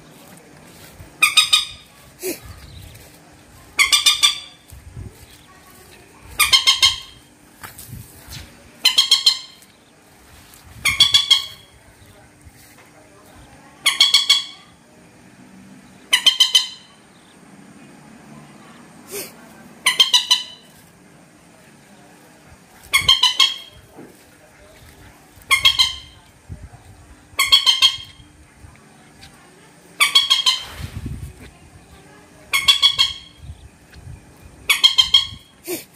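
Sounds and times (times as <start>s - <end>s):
moorhen calling: 1.2s - 2.0s, 3.7s - 5.5s, 6.4s - 7.3s, 8.8s - 10.1s, 10.8s - 12.1s, 13.4s - 14.8s, 15.9s - 17.5s, 19.8s - 20.8s, 22.9s - 23.9s, 25.4s - 26.2s, 27.4s - 28.3s, 30.0s - 30.8s, 32.5s - 33.8s, 34.5s - 35.5s.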